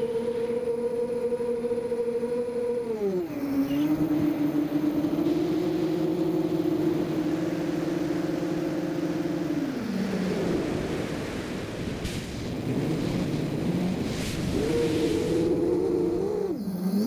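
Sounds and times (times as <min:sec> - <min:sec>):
quadcopter motors whining: 0:00.0 - 0:17.0
wind hiss: 0:09.5 - 0:16.5.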